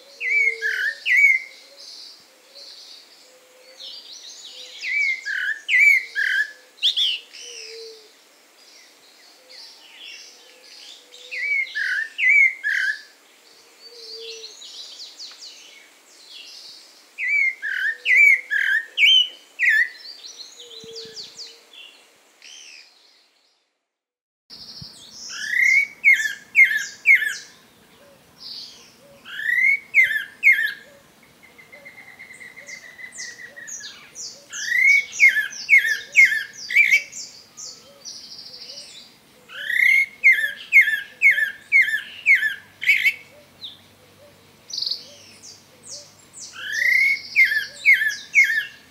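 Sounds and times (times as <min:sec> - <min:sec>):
thrush singing whistled phrases: 0:25.3 - 0:27.4, 0:29.3 - 0:30.8, 0:32.4 - 0:37.2, 0:46.5 - 0:48.8.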